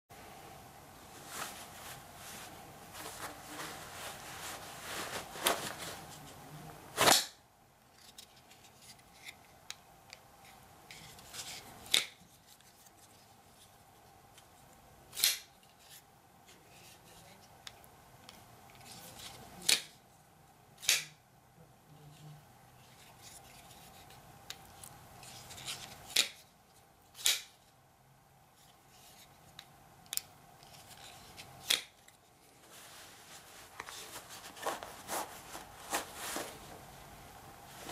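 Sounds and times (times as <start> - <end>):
clothing rustling: 1.0 - 7.1, 32.3 - 37.9.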